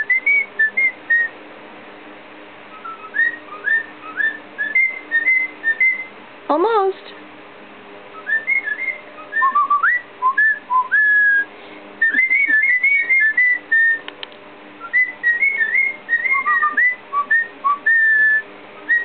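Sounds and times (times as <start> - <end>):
cockatiel whistling: 0.0 - 1.3, 2.7 - 6.1, 8.1 - 14.1, 14.8 - 19.0.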